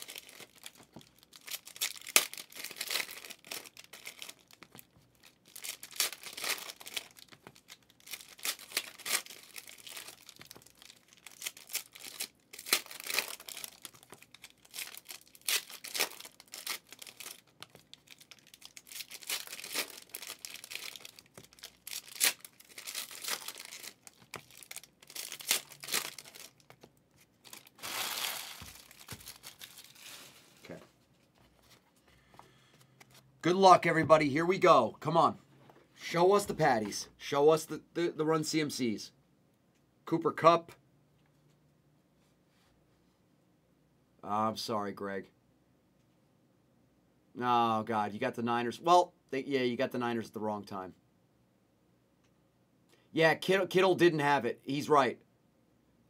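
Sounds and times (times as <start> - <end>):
plastic wrappers ripping: 0.0 - 30.4
wrappers crinkling: 0.0 - 31.8.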